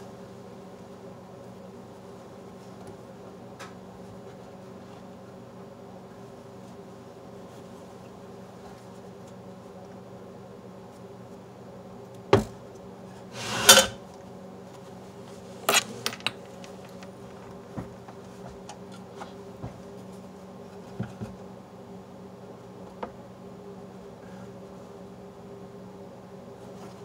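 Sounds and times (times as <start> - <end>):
steady low hum: 0.0 - 27.0
scraping rub: 13.3 - 14.0.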